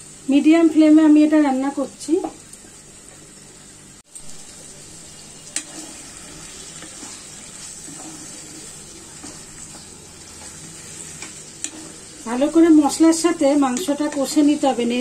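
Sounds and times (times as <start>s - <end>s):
chicken sizzling in oil: 0.0s - 15.0s
spatula tapping and scraping pan: 6.7s - 12.1s, 13.2s - 14.6s.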